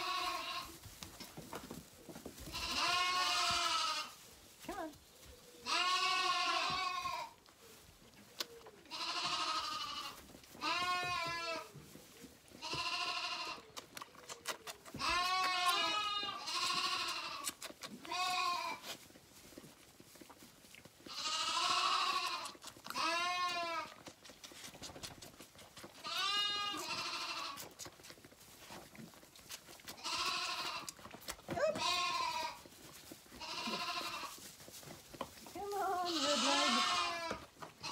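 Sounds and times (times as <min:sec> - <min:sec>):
lambs bleating: 0:00.0 - 0:00.8, 0:02.4 - 0:04.2, 0:05.6 - 0:07.4, 0:08.9 - 0:11.7, 0:12.6 - 0:13.6, 0:15.0 - 0:19.0, 0:21.0 - 0:24.0, 0:26.0 - 0:27.8, 0:29.9 - 0:32.7, 0:33.4 - 0:34.5, 0:35.6 - 0:37.9.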